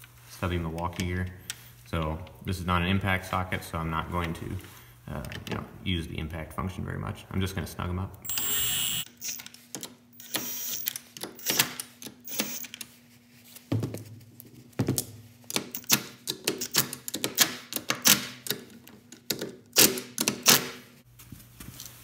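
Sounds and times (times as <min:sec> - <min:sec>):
impact wrench clicking and knocking: 0:08.3 - 0:12.8, 0:15.5 - 0:20.8.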